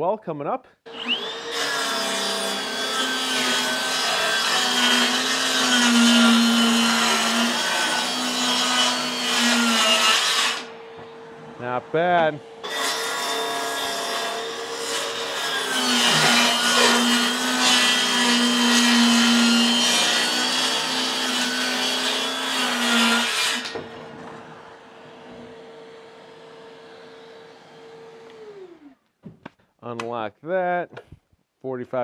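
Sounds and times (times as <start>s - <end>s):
circular saw cutting plywood: 0.9s - 29.0s
vacuum motor hum: 23.9s - 29.0s.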